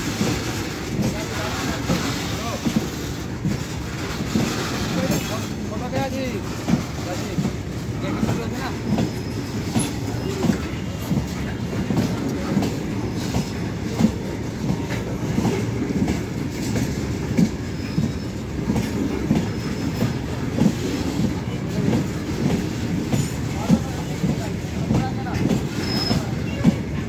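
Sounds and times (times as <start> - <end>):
train rumble: 0.0 - 27.0
train wheels clacking on rail joints: 0.0 - 27.0
faint wheel squeal: 8.8 - 11.1, 19.4 - 20.2, 25.7 - 26.8.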